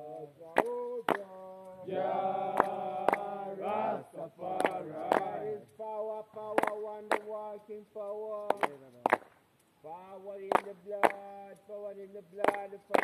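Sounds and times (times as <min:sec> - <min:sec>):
men chanting together: 0:00.0 - 0:07.8.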